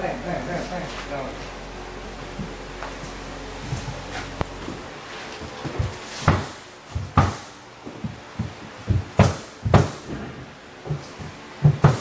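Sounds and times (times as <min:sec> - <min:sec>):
sharp knocks: 0:06.2 - 0:11.0, 0:11.6 - 0:12.0.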